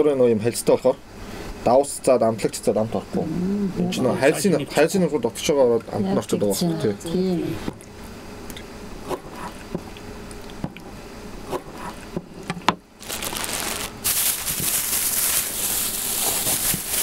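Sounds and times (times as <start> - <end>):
plastic bag rustling: 13.0 - 17.0.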